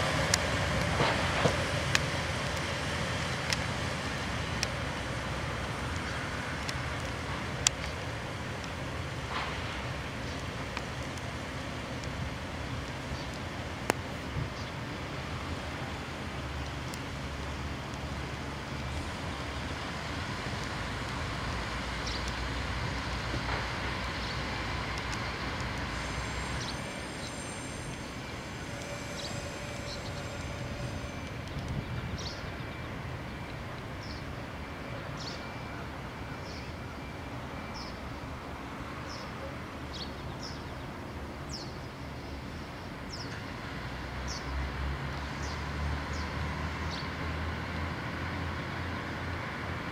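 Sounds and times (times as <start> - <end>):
train rumbling: 0.0 - 49.9
train wheels squealing: 25.8 - 33.5.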